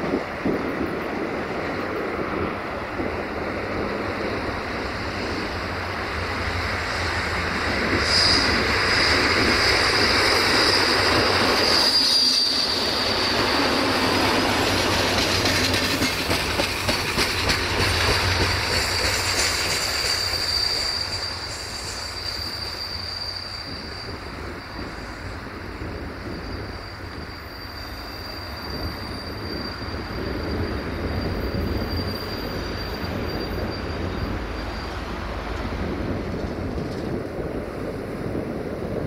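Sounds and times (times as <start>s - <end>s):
high wheel squeal: 4.0s - 37.1s
train wheels clattering over joints: 7.2s - 22.4s, 35.6s - 37.6s.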